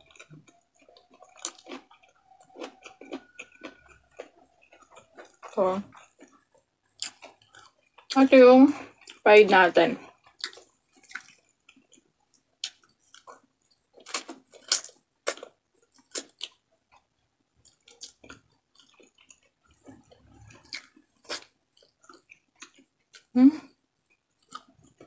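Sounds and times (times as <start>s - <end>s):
person chewing and biting: 0.0s - 8.2s, 8.9s - 9.2s, 10.0s - 23.3s, 24.0s - 25.0s
mouth clicks and smacks: 10.0s - 17.0s.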